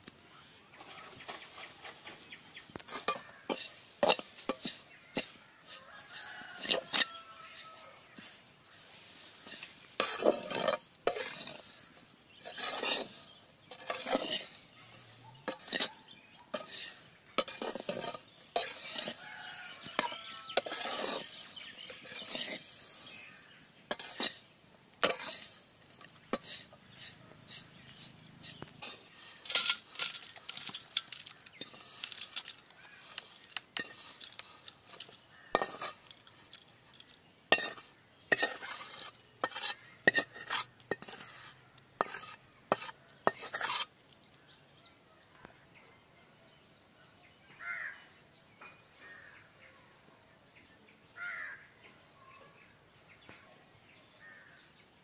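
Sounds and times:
metal spatula scraping a pan: 0.8 - 44.0
pan scraped over steel plate: 0.8 - 44.0
spatula clanking against pan: 37.5 - 41.2.

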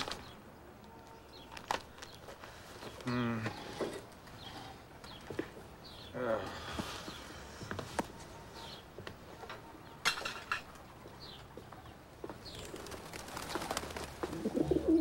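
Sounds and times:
dishes clinking: 10.0 - 10.7
pigeon cooing: 14.2 - 15.0.

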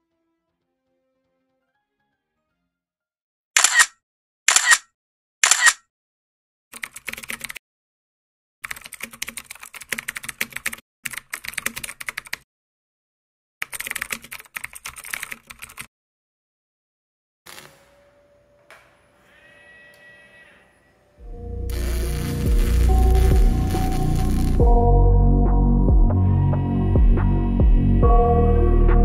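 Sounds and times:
keyboard typing bursts: 6.8 - 7.6, 8.6 - 12.4, 13.6 - 15.9
rapid keyboard key clicks: 6.8 - 7.6, 8.6 - 12.4, 13.6 - 15.9.

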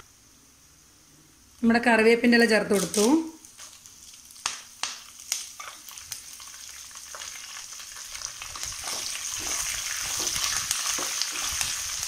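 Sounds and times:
leaves crackling in oil: 2.5 - 12.0
food sizzling in hot oil: 2.7 - 12.0
spatula stirring: 5.6 - 12.0.

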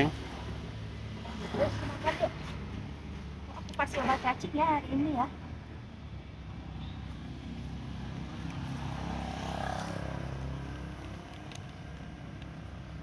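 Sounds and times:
low traffic rumble: 0.0 - 13.0
vehicle passing by: 6.4 - 13.0.

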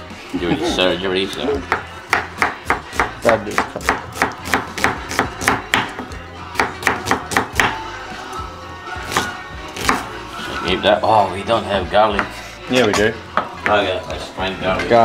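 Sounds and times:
music: 0.0 - 15.0
knife chopping on wooden board: 1.6 - 7.8.

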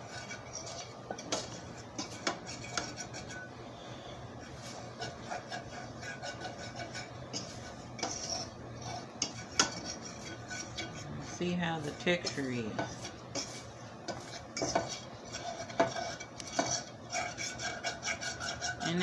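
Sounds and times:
fork scraping metal skillet: 0.0 - 19.0.

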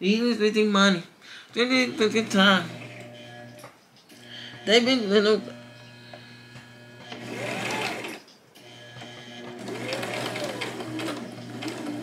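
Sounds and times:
sewing machine stitching: 1.9 - 3.6, 6.5 - 12.0.

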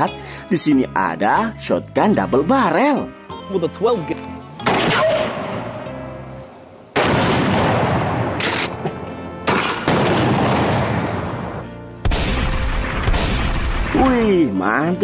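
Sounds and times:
shotgun blasts echoing: 4.6 - 5.7, 7.0 - 14.2.

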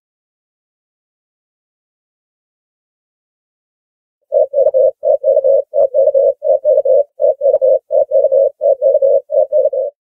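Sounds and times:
dove cooing: 4.3 - 10.0.

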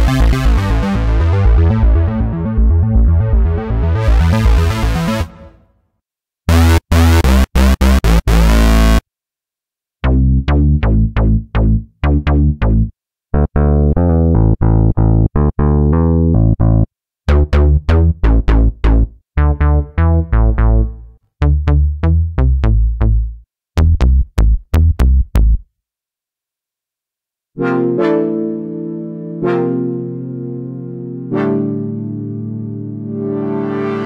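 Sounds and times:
staccato synthesizer bass notes: 0.0 - 5.6, 6.5 - 9.0, 10.0 - 25.7.

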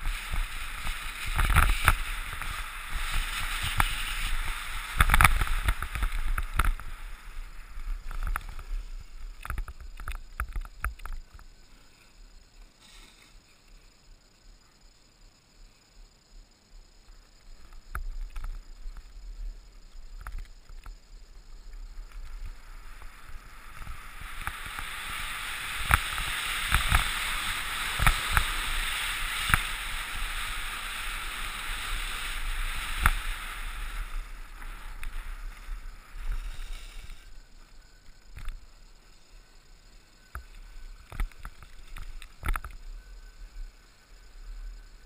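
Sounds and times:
skis scraping over snow: 0.0 - 10.8, 21.6 - 39.3.

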